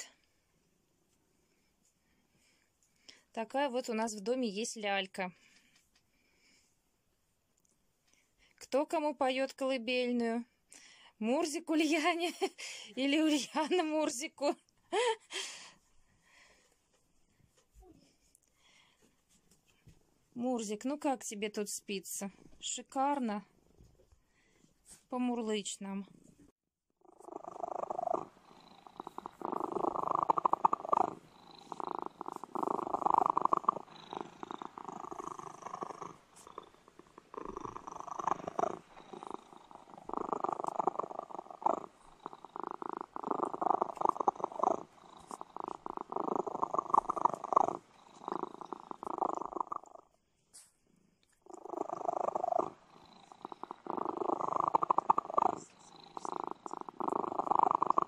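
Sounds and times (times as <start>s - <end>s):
cat purring: 26.3s - 58.0s.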